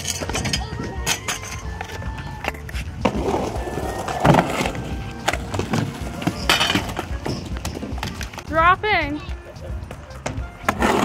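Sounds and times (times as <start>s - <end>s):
faint music: 0.0s - 11.0s
skate wheels rolling on ramp: 0.2s - 8.5s.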